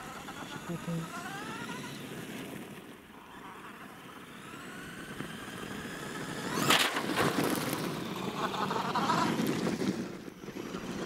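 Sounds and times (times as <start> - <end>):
electric motor whining: 0.0 - 9.8
tyres rushing on gravel: 6.2 - 11.0.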